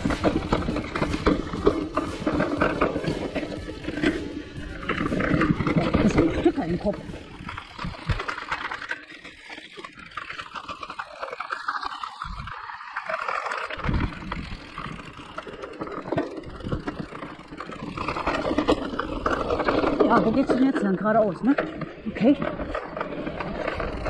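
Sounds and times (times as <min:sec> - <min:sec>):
bike rattling and clicking: 0:00.0 - 0:24.0
bike tyres rolling on dirt: 0:00.0 - 0:24.0.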